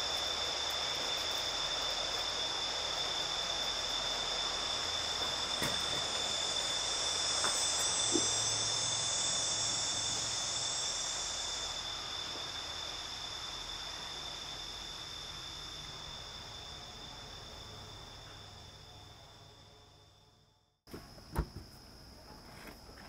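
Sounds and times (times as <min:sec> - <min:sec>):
crickets and insects chirping: 0:00.0 - 0:23.0.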